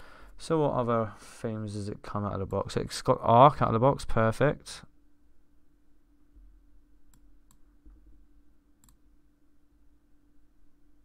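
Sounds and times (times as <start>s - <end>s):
faint low hum: 0.0s - 11.0s
computer mouse clicks: 7.1s - 7.7s, 8.8s - 9.0s.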